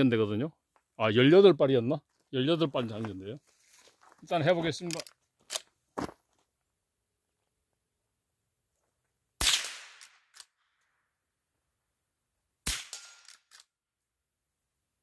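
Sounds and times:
rifle shots: 9.4s - 10.4s, 12.6s - 13.4s.

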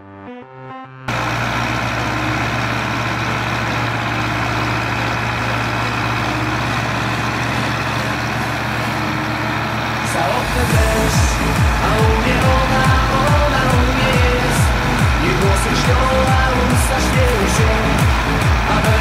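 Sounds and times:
tractor diesel engines running: 1.1s - 19.0s.

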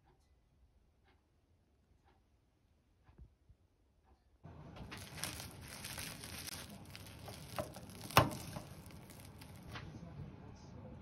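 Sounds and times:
plastic cling wrap crinkling: 4.6s - 9.8s.

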